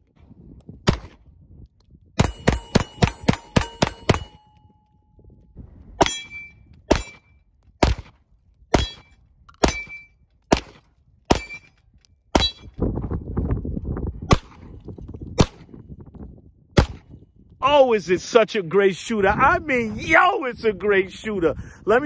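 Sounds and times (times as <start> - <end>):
bullets ringing on steel targets: 2.2 - 5.0, 6.0 - 7.3, 8.7 - 10.2, 11.3 - 11.8, 12.4 - 12.8
pistol shots: 7.8 - 11.7.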